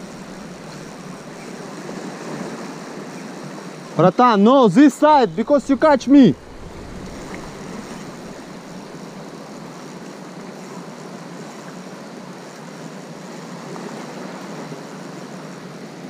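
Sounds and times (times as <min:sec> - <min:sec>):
sea surf: 0:00.0 - 0:16.0
wind noise on microphone: 0:05.3 - 0:09.4.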